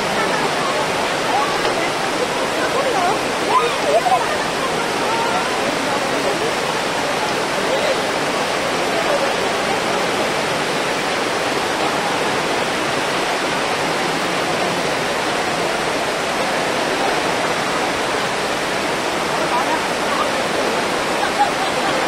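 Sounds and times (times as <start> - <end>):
heavy rain on tent canopy: 0.0 - 22.0.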